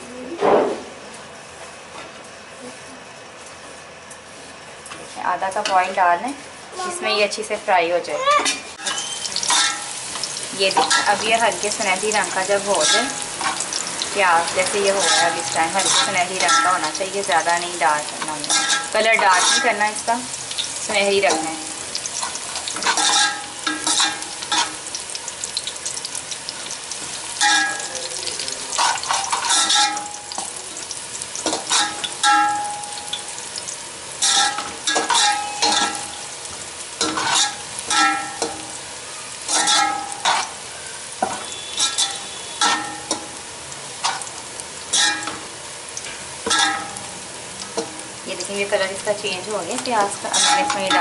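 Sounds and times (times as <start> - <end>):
onions sizzling in oil: 6.7 - 51.0
metal spoon scraping pot: 41.6 - 42.8, 50.3 - 51.0.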